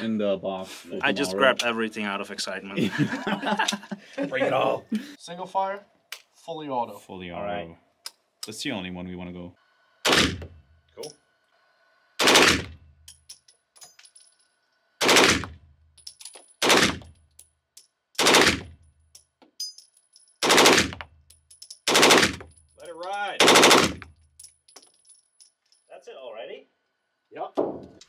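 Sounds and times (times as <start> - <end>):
submachine gun bursts: 12.2 - 12.7, 15.0 - 15.4, 20.4 - 20.9, 21.9 - 22.4, 23.4 - 24.0.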